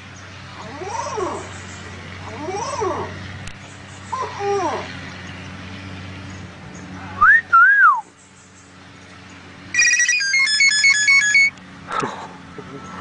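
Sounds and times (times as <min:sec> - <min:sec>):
bird beeping notes: 0:09.7 - 0:11.6
bird whistling a ringtone: 0:09.7 - 0:11.6.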